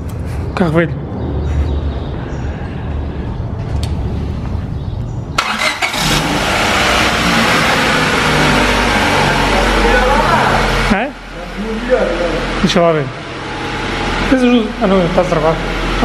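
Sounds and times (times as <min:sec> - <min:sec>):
car engine cranking: 0:05.4 - 0:16.0
car engine running loudly: 0:05.4 - 0:16.0.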